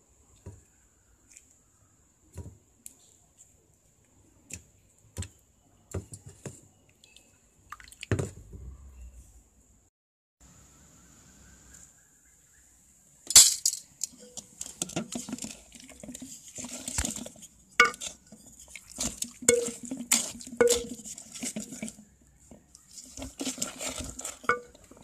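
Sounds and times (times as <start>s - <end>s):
wooden masher knocking metal pot: 14.2s - 22.1s, 23.2s - 25.0s
wet mashing: 14.5s - 25.0s.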